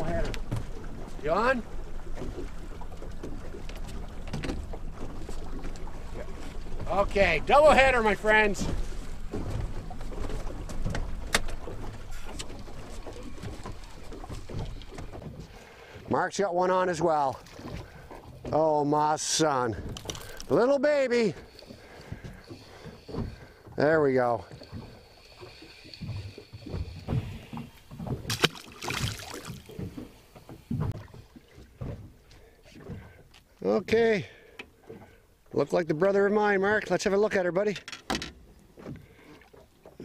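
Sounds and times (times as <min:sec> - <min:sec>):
water lapping at boat: 0:00.0 - 0:40.0
splash in water: 0:28.1 - 0:30.0.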